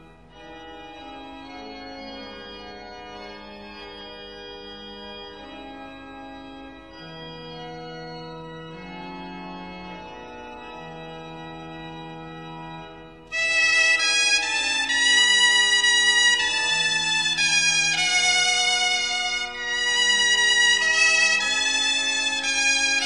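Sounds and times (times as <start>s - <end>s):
organ chords: 0.0s - 23.0s.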